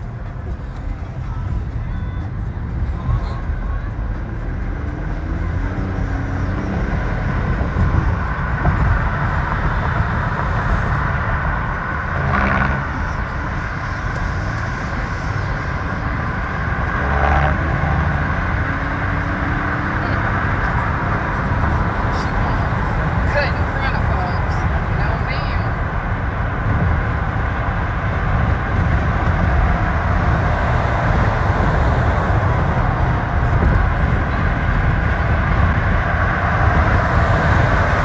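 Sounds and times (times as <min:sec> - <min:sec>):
road and engine noise in car: 0:00.0 - 0:38.0.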